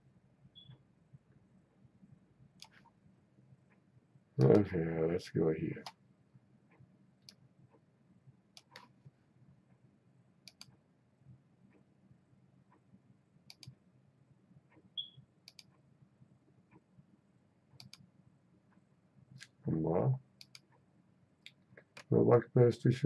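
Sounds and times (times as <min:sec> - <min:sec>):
low steady hum: 0:00.0 - 0:23.0
computer mouse clicks: 0:02.6 - 0:03.0, 0:08.6 - 0:09.0, 0:10.4 - 0:10.8, 0:13.5 - 0:13.8, 0:14.7 - 0:15.8, 0:17.8 - 0:18.1, 0:20.4 - 0:20.8.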